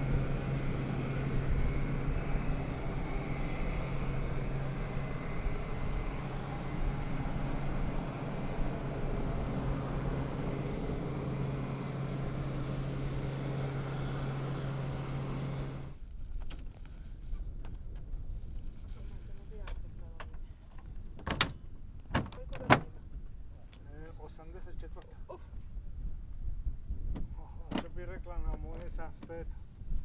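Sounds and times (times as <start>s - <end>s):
aircraft ducted fan running: 0.0s - 16.0s.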